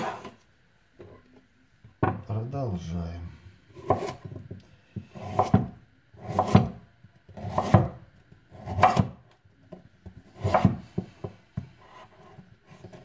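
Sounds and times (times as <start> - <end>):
knife slicing carrot on wooden board: 3.7 - 4.4, 5.0 - 9.2, 10.2 - 13.0.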